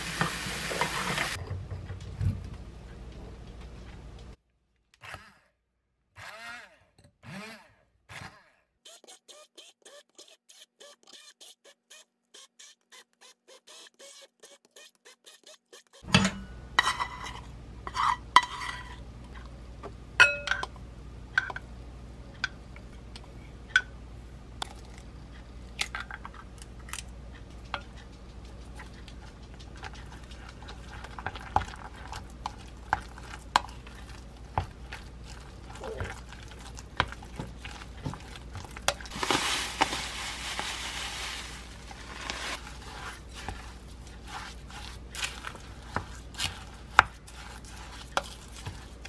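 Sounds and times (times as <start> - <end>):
utensil stirring and scraping: 8.9 - 16.1, 27.8 - 49.0.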